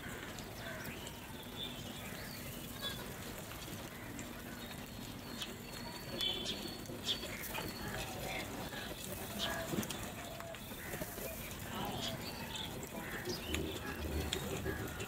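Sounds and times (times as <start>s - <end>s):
crows cawing: 0.0s - 1.3s, 2.0s - 4.8s, 7.3s - 15.0s
beaks pecking in bowls: 0.0s - 15.0s.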